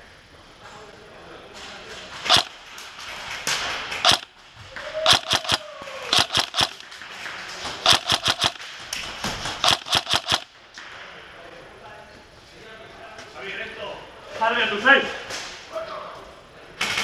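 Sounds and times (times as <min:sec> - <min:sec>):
airsoft guns firing: 0:02.2 - 0:02.7, 0:03.4 - 0:04.4, 0:05.0 - 0:07.1, 0:07.7 - 0:10.7.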